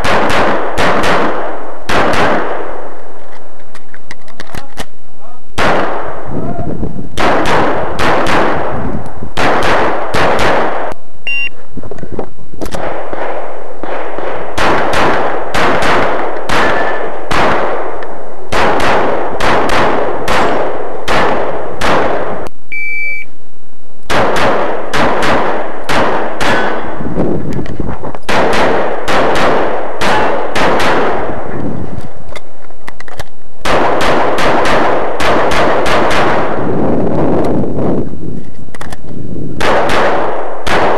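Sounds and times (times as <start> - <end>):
pistol shots echoing: 0.0 - 3.0, 5.6 - 6.2, 7.2 - 8.8, 9.4 - 10.9, 12.8 - 22.4, 24.1 - 27.0, 28.3 - 31.5, 33.6 - 36.7, 39.6 - 40.9
short beep: 11.2 - 11.6, 22.7 - 23.4.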